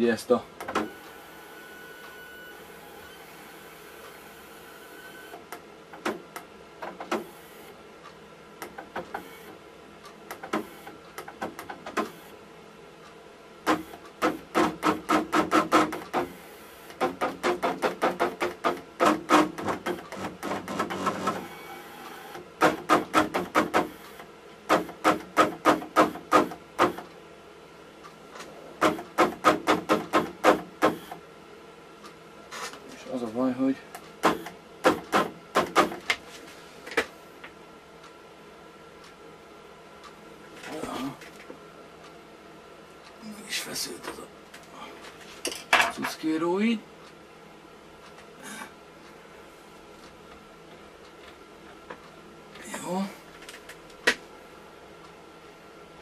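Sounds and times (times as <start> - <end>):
stepper motors clicking: 13.7 - 27.1.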